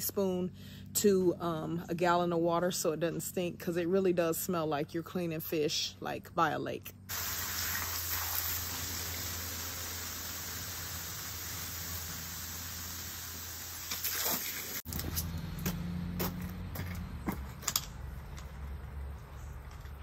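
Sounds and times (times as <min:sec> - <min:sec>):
water spraying from garden hose: 0:07.1 - 0:14.9.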